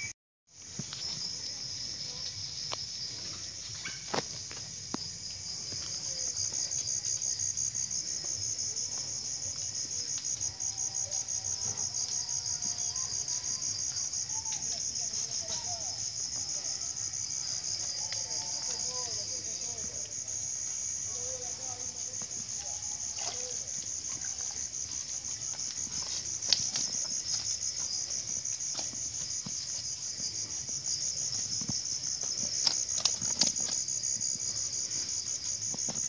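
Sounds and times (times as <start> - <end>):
insects trilling: 0.0 - 36.0
wavering lower insect calls: 0.8 - 8.0.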